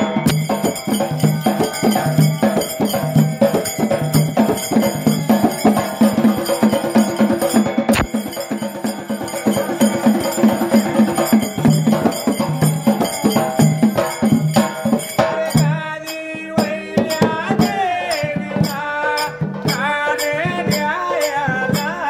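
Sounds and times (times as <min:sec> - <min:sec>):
man singing: 0:00.0 - 0:07.6, 0:14.8 - 0:22.0
folk percussion ensemble: 0:00.0 - 0:22.0.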